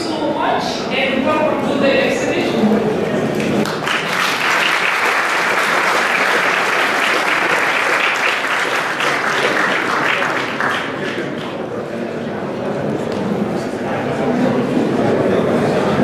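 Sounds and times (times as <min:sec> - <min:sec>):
audience applauding: 0:03.3 - 0:11.6.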